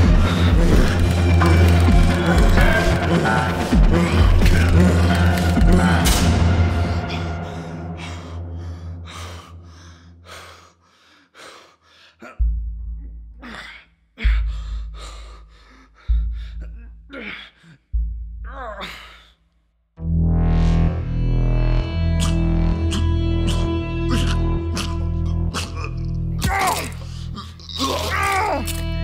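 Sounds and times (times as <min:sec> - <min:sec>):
loud music: 0:00.0 - 0:08.6, 0:20.0 - 0:25.8
deep booms in film score: 0:00.0 - 0:10.9, 0:12.3 - 0:19.4
man gasping and sighing: 0:00.1 - 0:19.5.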